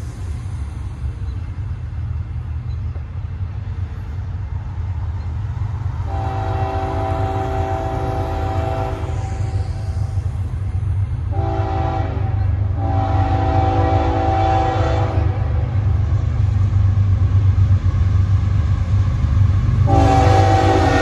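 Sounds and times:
low rumble of passing train: 0:00.0 - 0:21.0
locomotive air horn blasts: 0:06.1 - 0:09.8, 0:11.3 - 0:15.8, 0:19.9 - 0:21.0.

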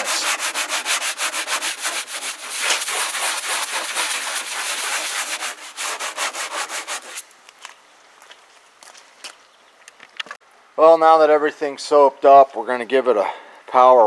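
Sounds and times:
brush scrubbing plastic: 0:00.0 - 0:07.2.

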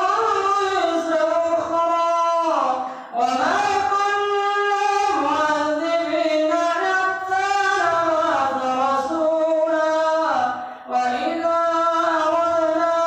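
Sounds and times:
man chanting into a microphone: 0:00.0 - 0:13.0
short breath: 0:02.8 - 0:03.2, 0:10.5 - 0:10.9.

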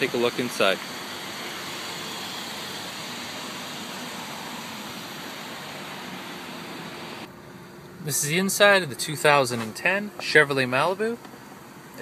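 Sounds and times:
steady outdoor hiss: 0:00.0 - 0:12.0.

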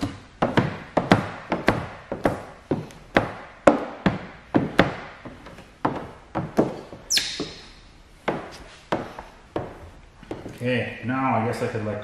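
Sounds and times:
squeegee squeak: 0:06.7 - 0:07.8.

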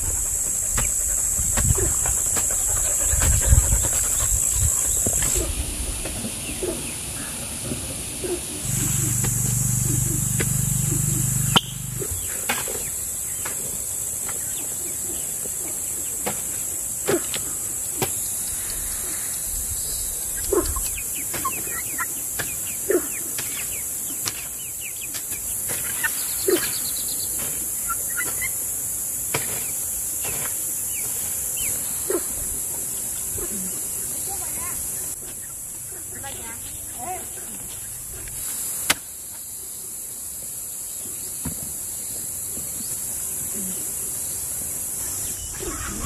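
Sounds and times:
insects chorus: 0:00.0 - 0:46.0
bird chirps: 0:08.6 - 0:12.9.

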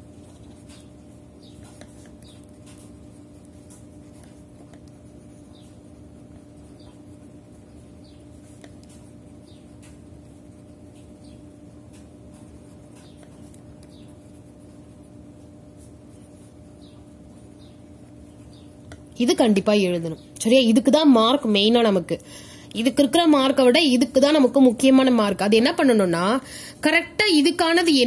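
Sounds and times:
pen writing on paper: 0:01.5 - 0:07.8.

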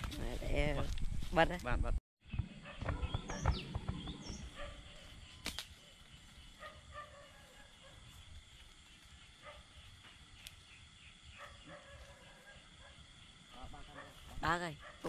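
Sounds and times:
night insects chirring: 0:02.6 - 0:15.0
sharp snap: 0:05.4 - 0:05.8.

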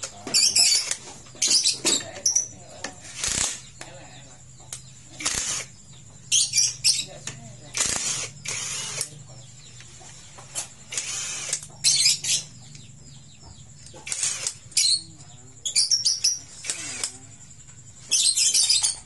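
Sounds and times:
impact driver rattling bursts: 0:07.7 - 0:09.1, 0:10.9 - 0:11.7, 0:14.0 - 0:14.6.

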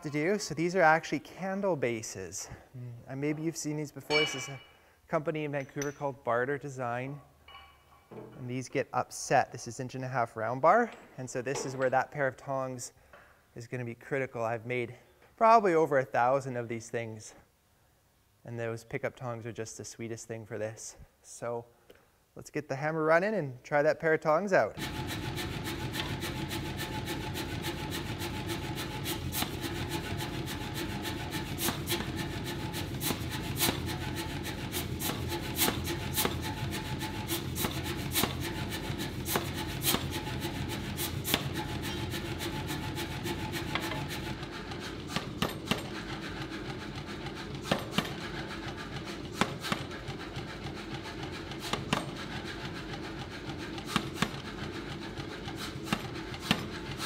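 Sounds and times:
hammer striking hot steel: 0:04.1 - 0:04.8, 0:24.8 - 0:53.1
power hammer running: 0:24.8 - 0:57.0.

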